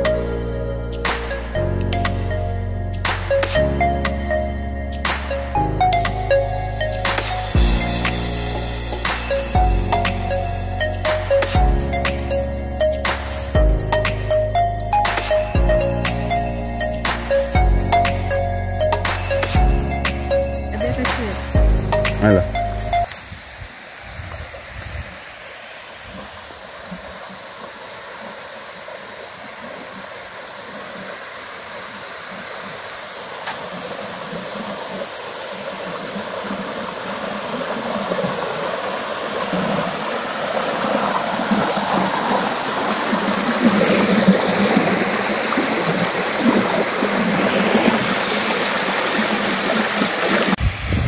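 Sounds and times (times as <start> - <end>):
rushing stream and waterfall: 0.0 - 51.0.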